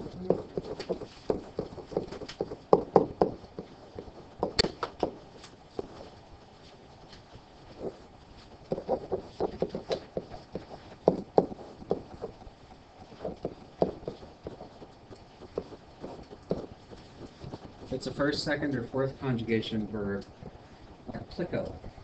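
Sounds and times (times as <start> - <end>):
stylus tapping on tablet screen: 0.6 - 5.2, 8.7 - 17.9.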